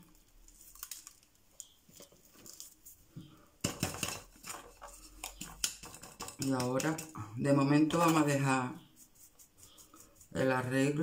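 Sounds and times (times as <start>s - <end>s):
ceramic pot clattering and scraping: 3.7s - 7.2s.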